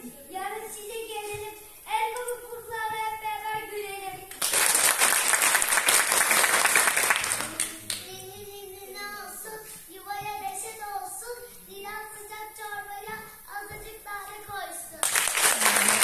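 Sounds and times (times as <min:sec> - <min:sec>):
audience applause: 0:04.4 - 0:08.0, 0:15.0 - 0:16.0.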